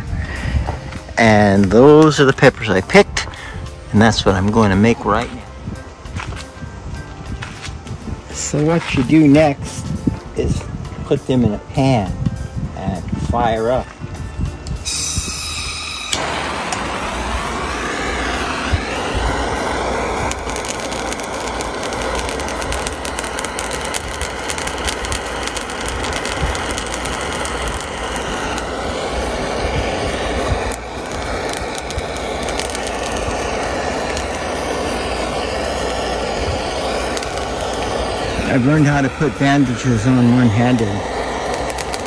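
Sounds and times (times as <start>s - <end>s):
torch flame hissing: 12.4s - 42.0s
peppers crackling: 18.3s - 42.0s.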